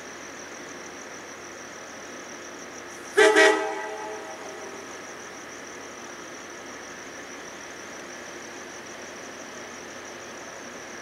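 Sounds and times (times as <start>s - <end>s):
diesel locomotive idling: 0.0s - 11.0s
train horn toot: 3.2s - 4.8s.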